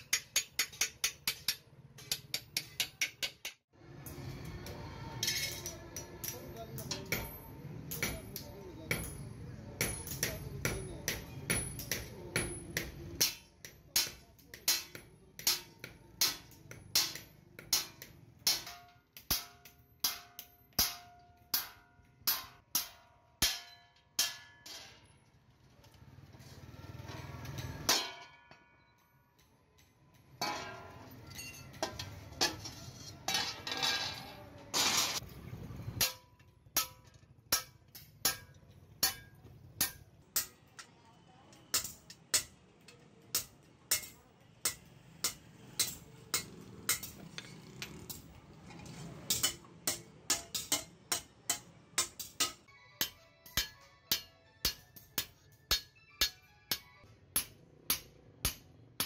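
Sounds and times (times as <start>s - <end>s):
hammer striking steel sheet: 9.8s - 25.1s, 27.7s - 28.6s, 35.9s - 40.6s, 49.1s - 58.7s.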